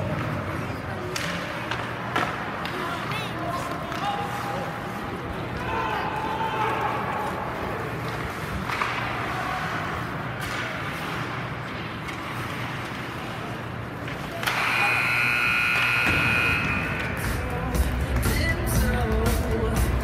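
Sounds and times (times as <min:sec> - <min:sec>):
ice skates on rink: 0:00.0 - 0:15.0
arena horn: 0:14.6 - 0:17.2.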